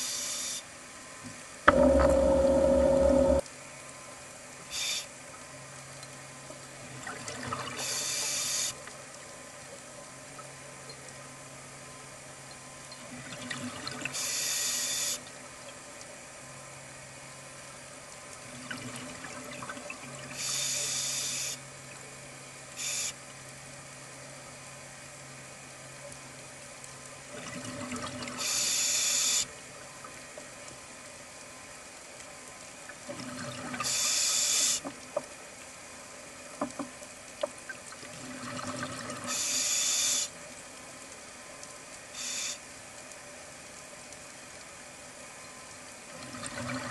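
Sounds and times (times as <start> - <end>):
faint steady hum: 0.0 - 46.9
underwater bubbles rushing: 1.7 - 3.4
scuba regulator hiss: 4.7 - 5.1, 7.8 - 8.7, 14.2 - 15.2, 20.4 - 21.6, 22.8 - 23.2, 28.4 - 29.5, 33.8 - 34.8, 39.3 - 40.3, 42.2 - 42.6.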